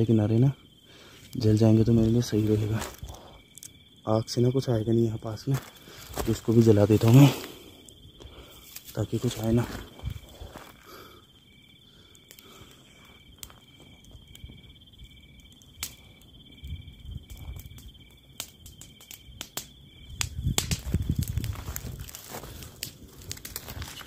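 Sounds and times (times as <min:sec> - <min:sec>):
insect high trill: 0:00.0 - 0:21.2
dry grass crackling as it burns: 0:00.0 - 0:24.0
insect short chirps: 0:00.6 - 0:04.8.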